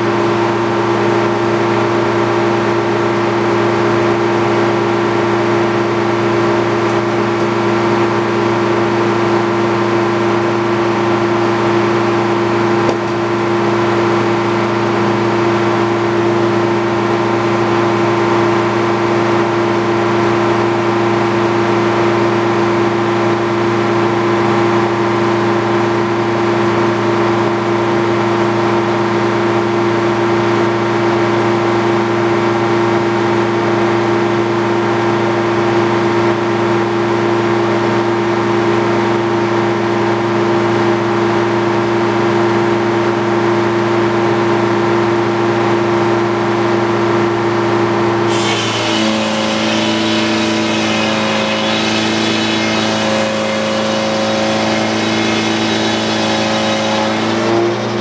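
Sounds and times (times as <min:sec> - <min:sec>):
circular sawmill running: 0:47.9 - 0:58.0.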